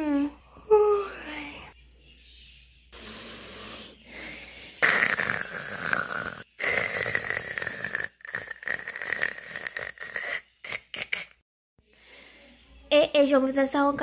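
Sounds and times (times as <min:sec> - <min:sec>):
person snoring: 0:03.0 - 0:10.9.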